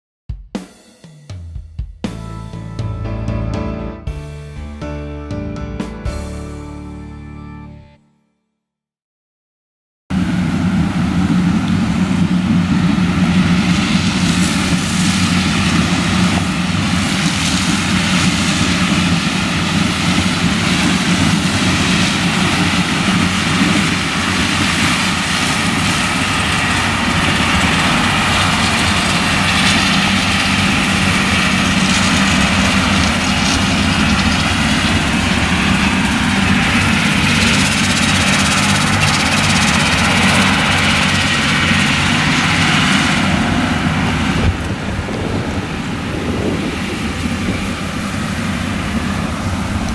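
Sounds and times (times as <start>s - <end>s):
combine harvester engine droning: 10.1s - 49.9s.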